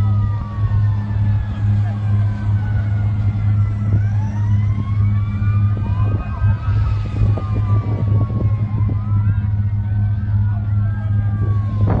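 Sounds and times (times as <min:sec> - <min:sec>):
low drone: 0:00.0 - 0:12.0
sirens wailing: 0:00.0 - 0:12.0.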